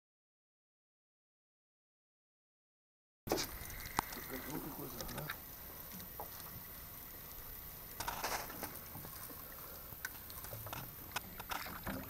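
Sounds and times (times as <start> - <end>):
faint clicks: 3.3 - 12.0.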